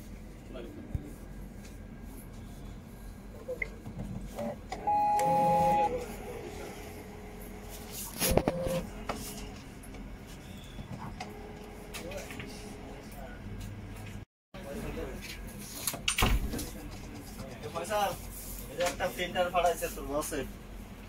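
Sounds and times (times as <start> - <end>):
faint mechanical running: 0.0 - 14.2
printer beep: 4.8 - 6.2, 8.2 - 8.9.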